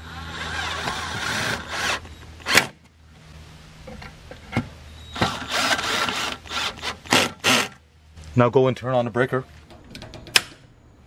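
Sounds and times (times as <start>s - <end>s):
cordless drill driving screws: 0.0s - 2.7s, 5.2s - 7.8s.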